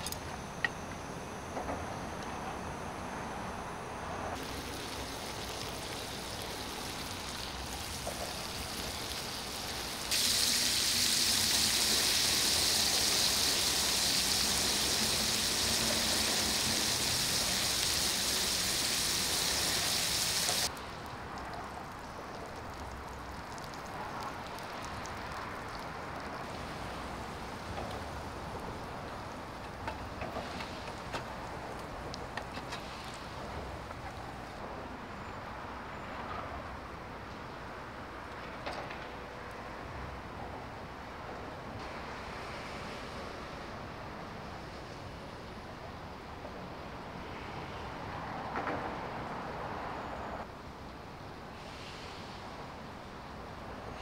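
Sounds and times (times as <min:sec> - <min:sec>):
pork sizzling in a griddle pan: 0:04.4 - 0:20.7.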